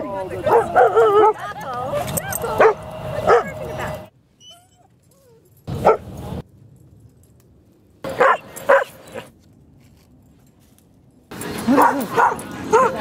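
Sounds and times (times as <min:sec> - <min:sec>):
dog barking: 0:00.4 - 0:01.4, 0:02.6 - 0:03.6, 0:05.8 - 0:06.1, 0:08.1 - 0:09.3, 0:11.7 - 0:13.0.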